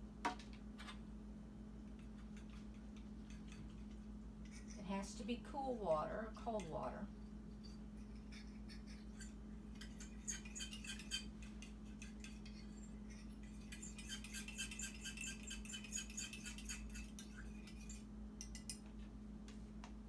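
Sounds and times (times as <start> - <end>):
spoon clinking against bowl: 8.8 - 18.8.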